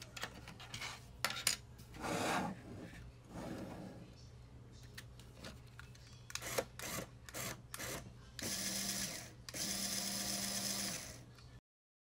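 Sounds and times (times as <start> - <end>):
small electric motor humming: 6.4 - 11.2.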